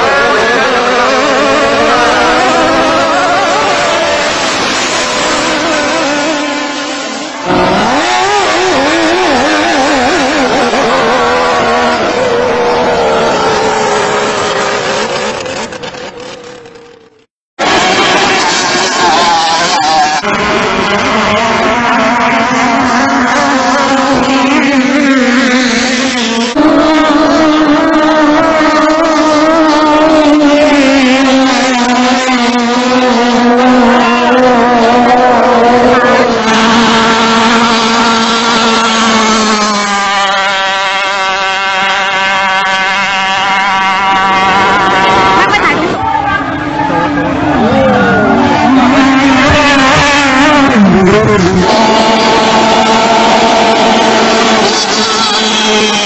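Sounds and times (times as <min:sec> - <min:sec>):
boat engine at high revs: 0:00.0 - 0:56.0.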